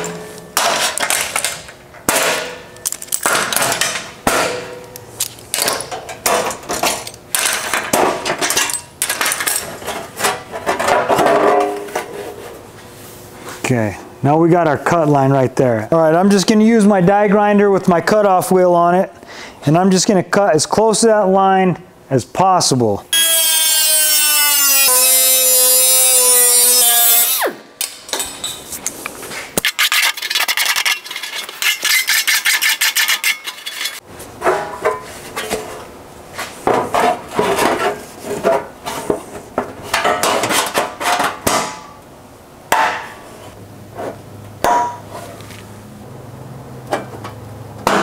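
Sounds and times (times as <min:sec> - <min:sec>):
metal clanks and scrapes: 0:00.0 - 0:12.6, 0:28.2 - 0:41.5
die grinder cutting sheet steel: 0:23.2 - 0:27.6.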